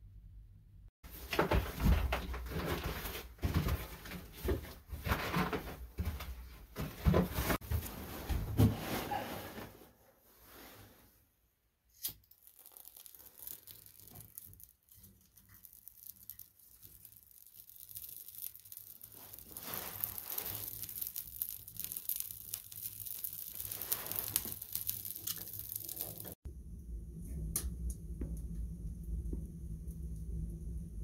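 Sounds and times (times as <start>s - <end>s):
wood fire crackling: 12.2s - 26.5s.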